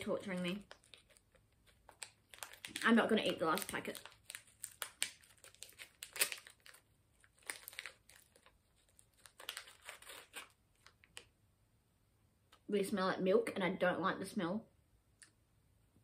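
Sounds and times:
plastic wrapper crinkling and tearing: 0:00.0 - 0:11.3.

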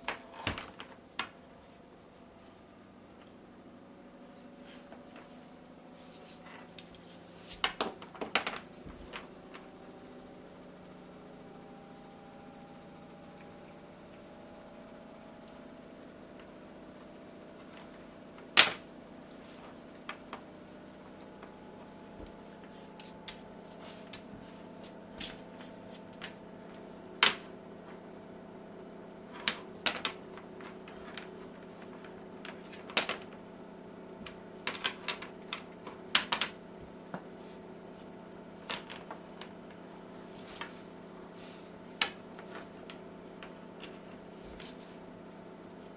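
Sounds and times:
faint steady hum: 0:00.0 - 0:45.9
bone and claws tapping wooden floor: 0:21.2 - 0:27.6.

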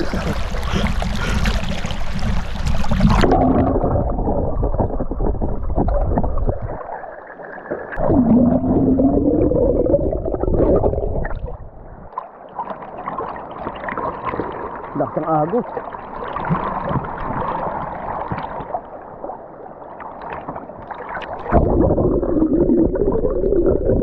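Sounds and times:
low tone dipping and rising: 0:00.0 - 0:12.1, 0:21.4 - 0:24.0
underwater gurgling: 0:00.0 - 0:24.0.

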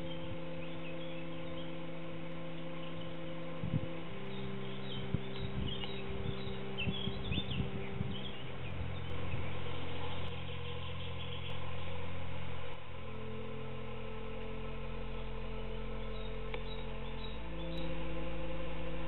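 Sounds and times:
small birds chirping: 0:00.0 - 0:12.0, 0:15.2 - 0:18.0
low mechanical hum: 0:00.0 - 0:19.0
steady low hum: 0:00.0 - 0:19.0.

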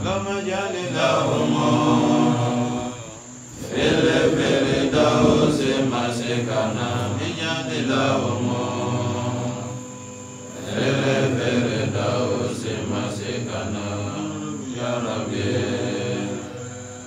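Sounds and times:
man chanting: 0:00.0 - 0:03.3.

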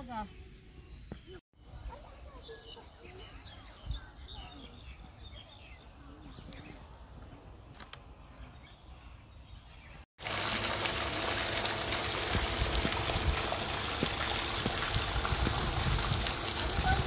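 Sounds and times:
faint outdoor background: 0:00.0 - 0:17.0
fountain jets splashing: 0:10.2 - 0:17.0.

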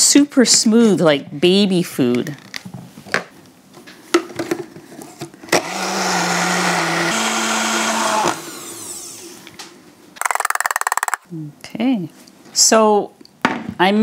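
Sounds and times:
blender motor humming: 0:05.5 - 0:09.4, 0:10.2 - 0:11.2
plastic clicks: 0:10.2 - 0:11.2.

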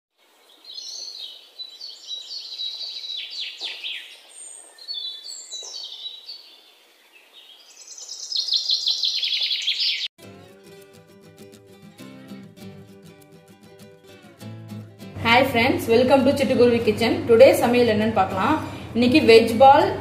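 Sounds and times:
songbird singing: 0:00.2 - 0:10.1
acoustic guitar music: 0:10.2 - 0:20.0.

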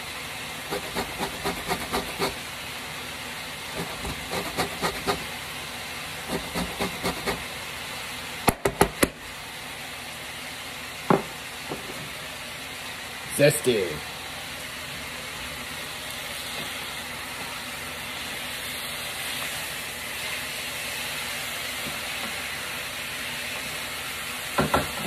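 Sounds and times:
orange rasping on metal grater: 0:00.7 - 0:02.4, 0:03.8 - 0:05.2.

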